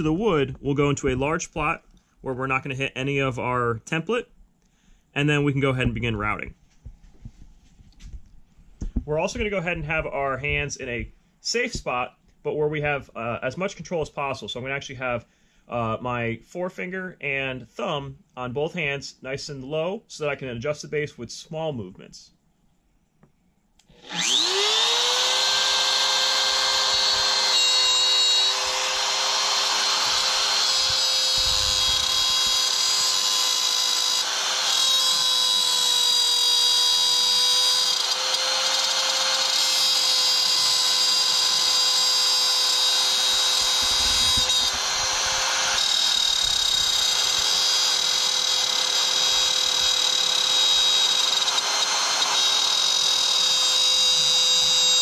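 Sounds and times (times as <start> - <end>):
wood router whining: 23.8 - 55.0.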